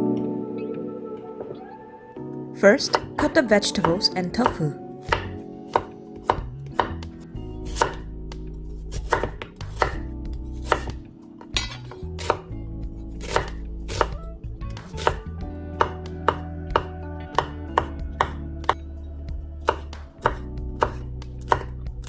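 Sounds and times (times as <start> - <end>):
knife chopping on wooden board: 2.8 - 8.1, 8.9 - 10.0, 10.6 - 12.5, 13.2 - 14.2, 14.8 - 15.2, 15.8 - 18.4, 19.6 - 21.8.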